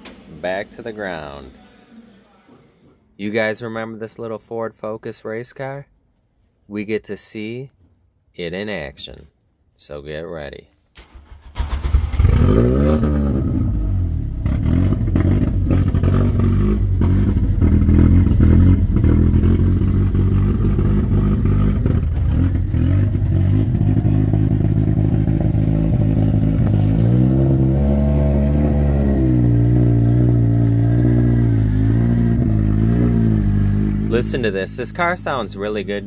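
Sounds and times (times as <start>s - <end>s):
race car engine idling and revving: 11.2s - 36.0s.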